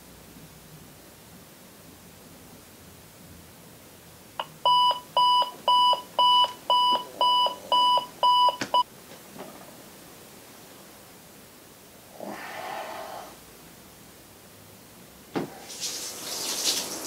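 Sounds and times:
digital alarm clock beeping: 4.4 - 8.8
knock: 15.4 - 15.6.

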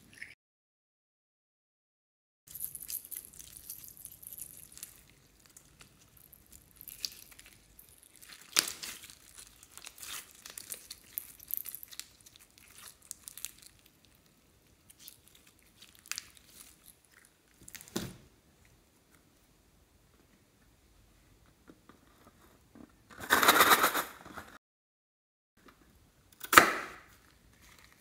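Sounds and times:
slime squishing and popping: 2.6 - 14.0, 14.9 - 17.0.

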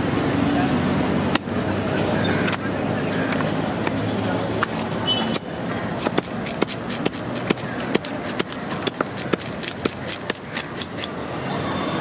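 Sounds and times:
scaler scraping fish scales: 6.0 - 11.1.

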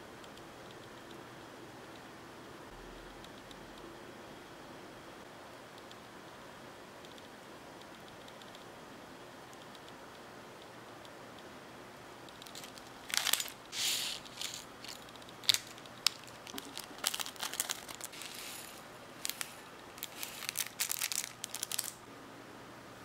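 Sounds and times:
packet crinkling: 12.4 - 22.0
scissors cutting foil sachet: 12.5 - 22.0.

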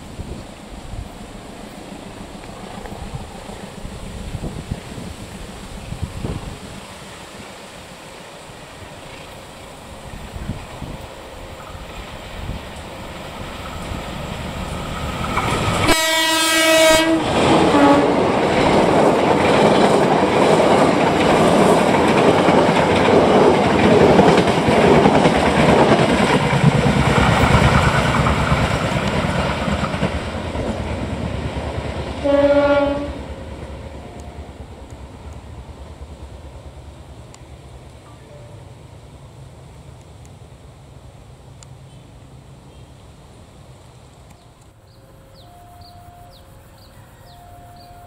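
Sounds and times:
train carriages clickety-clack: 0.0 - 38.6
train horn: 15.8 - 18.4, 32.2 - 33.4, 45.3 - 48.0.

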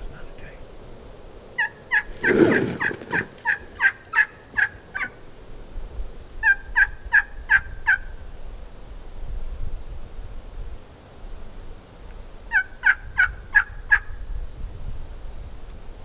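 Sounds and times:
turkey gobbling: 1.6 - 5.2, 6.4 - 8.1, 12.5 - 14.1
turkey hen yelps: 1.6 - 5.2, 12.5 - 14.1.

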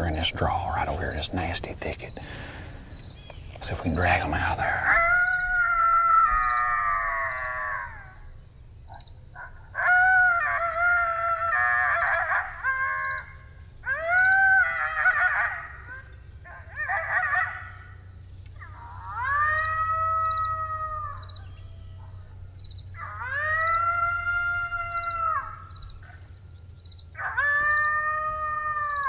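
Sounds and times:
coyote howling: 3.9 - 18.0, 18.6 - 22.3, 22.9 - 26.3, 27.1 - 29.0.

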